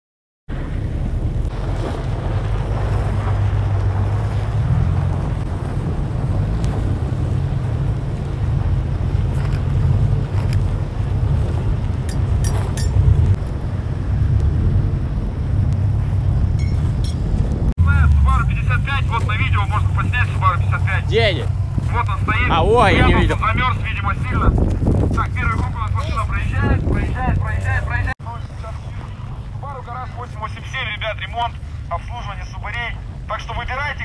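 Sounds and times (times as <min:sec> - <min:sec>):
car engine: 0:00.5 - 0:30.2
wind buffeting microphone: 0:00.5 - 0:32.0.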